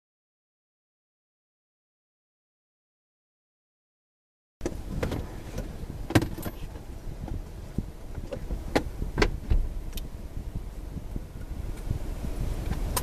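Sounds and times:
clicks and knocks of rattling: 4.6s - 7.4s
vehicle engine rumbling: 4.6s - 13.0s.

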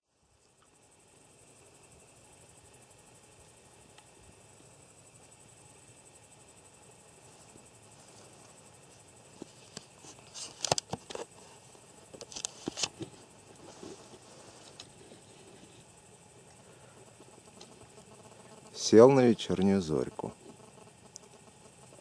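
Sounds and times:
crickets chirping: 0.1s - 22.0s
rustling through grass: 7.1s - 16.0s.

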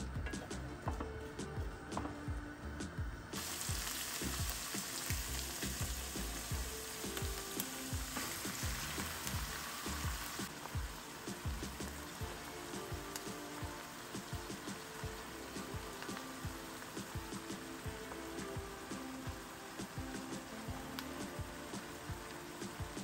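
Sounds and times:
vegetables sizzling in a frying pan: 3.4s - 23.0s.

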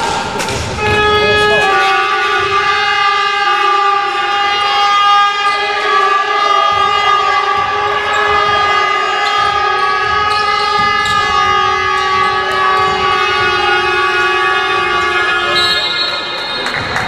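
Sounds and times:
held horn-like tones droning: 0.8s - 17.0s
faint low thuds: 6.7s - 15.6s.

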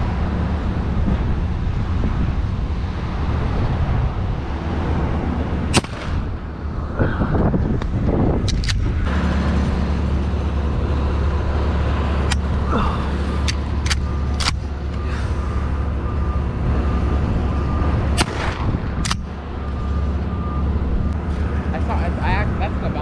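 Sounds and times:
heavy vehicle engine running: 0.0s - 23.0s
sharp cracks: 5.7s - 6.3s, 13.4s - 14.7s, 18.2s - 19.3s.

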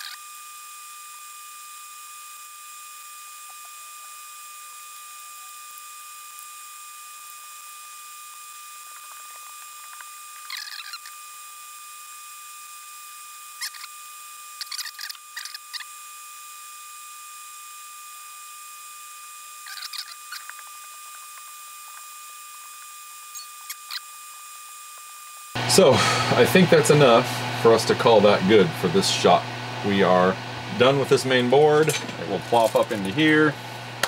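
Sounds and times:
high whine with hiss: 0.0s - 34.0s
wire cutters snipping: 31.6s - 33.3s.

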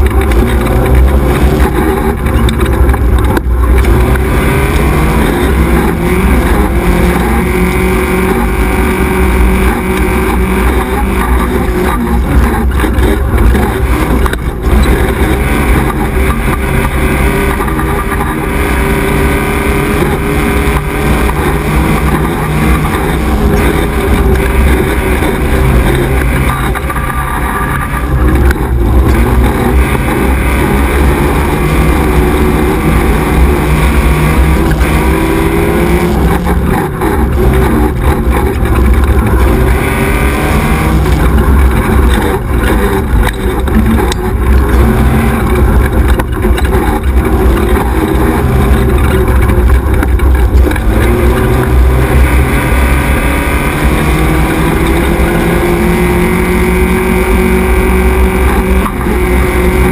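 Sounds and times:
buggy engine running hard: 0.0s - 59.9s.

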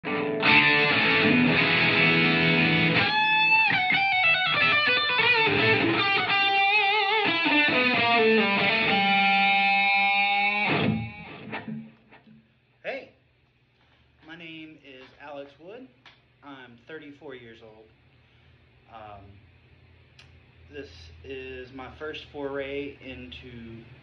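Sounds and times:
electric guitar playing: 0.0s - 12.4s.

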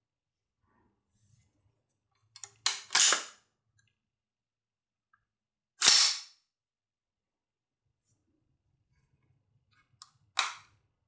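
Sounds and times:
rifle bolt racked back: 2.7s - 3.3s.

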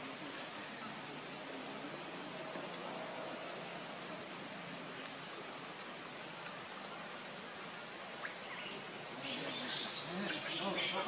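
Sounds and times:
steady background hiss: 0.0s - 11.0s.

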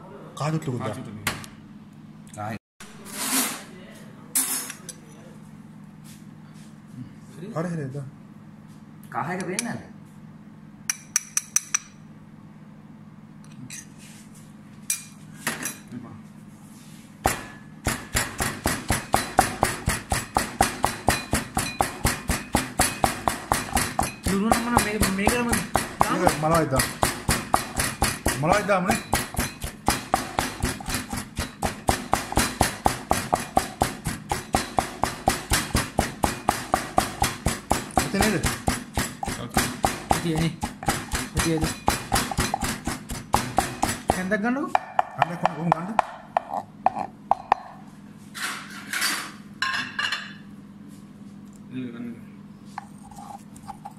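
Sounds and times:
soft scrapes: 16.6s - 17.2s
rhythmic ringing knocks: 17.9s - 44.3s.

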